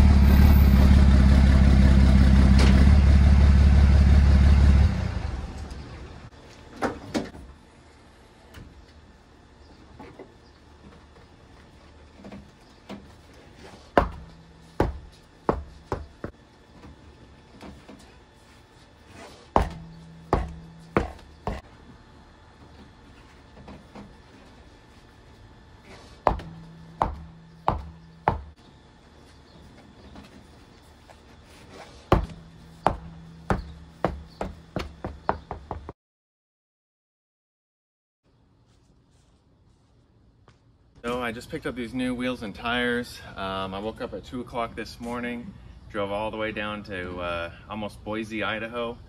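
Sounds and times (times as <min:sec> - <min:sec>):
tire bouncing on concrete: 0:12.1 - 0:16.4, 0:19.4 - 0:21.7, 0:26.1 - 0:28.6, 0:32.0 - 0:36.0
hollow thuds with low ring: 0:14.0 - 0:16.3, 0:19.6 - 0:21.6, 0:26.2 - 0:28.6, 0:32.1 - 0:35.8.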